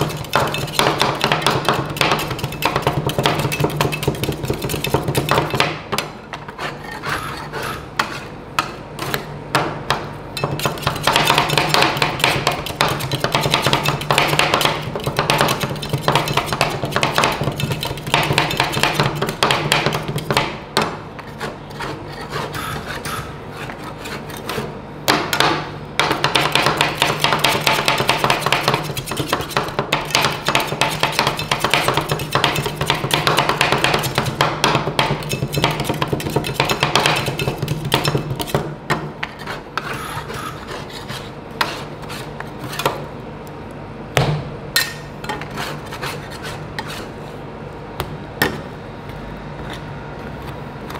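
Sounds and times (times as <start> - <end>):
steady low hum: 0.0 - 50.9
spatulas scraping: 6.4 - 8.4, 39.2 - 43.0, 44.8 - 47.4.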